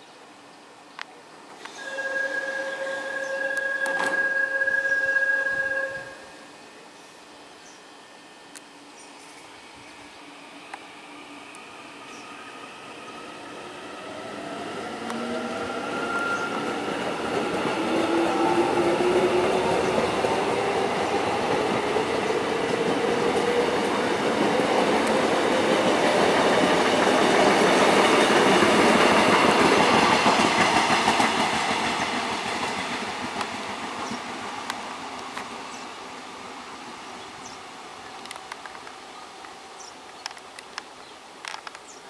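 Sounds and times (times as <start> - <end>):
electric train motors whining: 1.5 - 37.0
train wheels rumbling on rails: 10.5 - 41.9.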